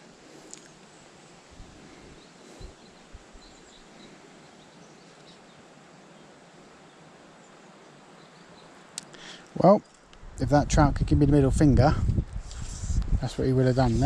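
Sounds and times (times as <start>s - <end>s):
distant bird chirps: 0.0s - 10.1s
faint steady hiss: 0.0s - 14.0s.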